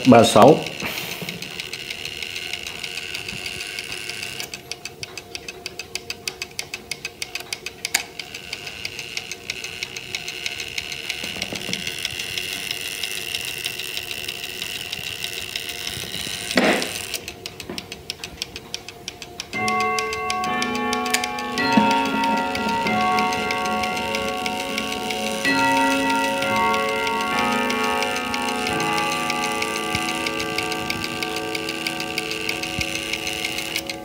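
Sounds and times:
clock mechanism clicking: 0.0 - 34.0
clock clunk: 19.6 - 34.0.

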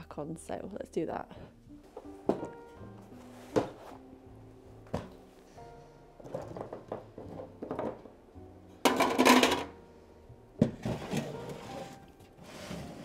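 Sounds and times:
soft background music: 0.0 - 13.0
art supplies clicking and knocking: 6.2 - 8.1.

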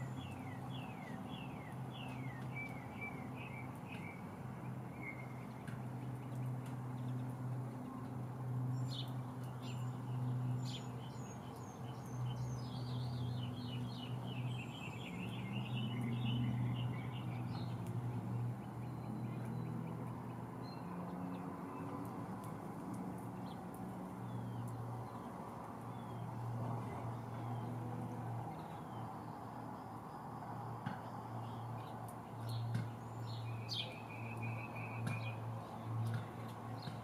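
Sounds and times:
songbird twittering: 32.4 - 35.4
bird chirps: 32.4 - 35.6.

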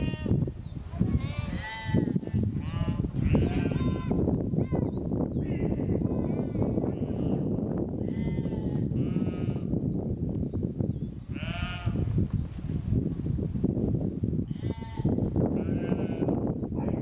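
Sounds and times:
sheep bleating: 1.4 - 4.2, 5.4 - 9.7, 11.3 - 12.0, 14.5 - 16.4.

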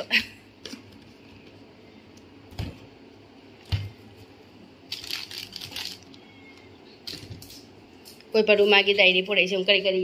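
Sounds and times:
plastic packets crinkling: 4.8 - 6.4.

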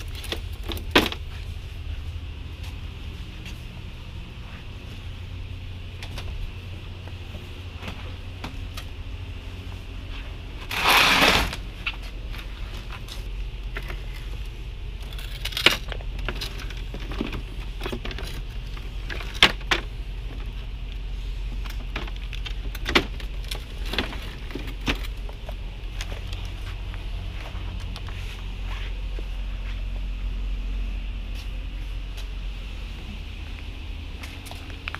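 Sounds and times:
steady low hum: 0.0 - 34.9
rustling scrape: 9.9 - 13.3.

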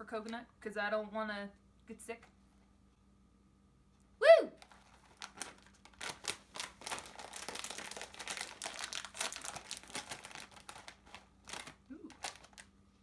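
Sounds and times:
plastic chip bag crinkling: 4.6 - 13.0.

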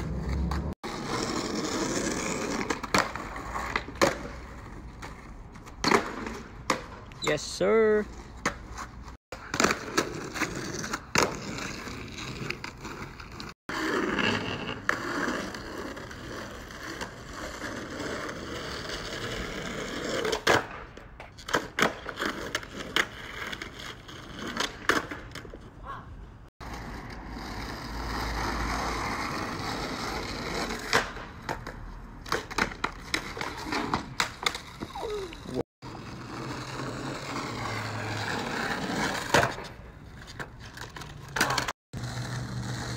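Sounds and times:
skateboard popping and landing clacks: 0.0 - 7.2, 8.4 - 25.7, 28.3 - 35.5, 36.3 - 42.9
skateboard wheels rolling on asphalt: 0.0 - 42.9.

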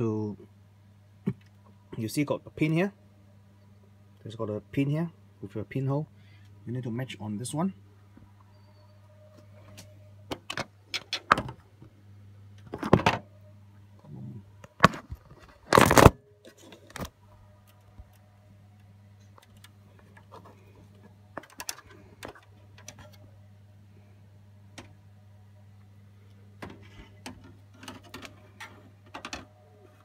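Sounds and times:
computer parts clicking and scraping: 19.2 - 23.2, 26.6 - 30.0.

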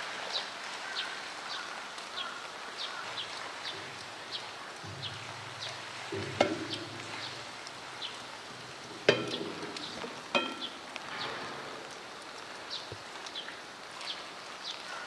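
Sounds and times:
heavy rain falling: 0.0 - 15.0
sharp ringing knocks: 4.8 - 7.6, 8.5 - 10.8.

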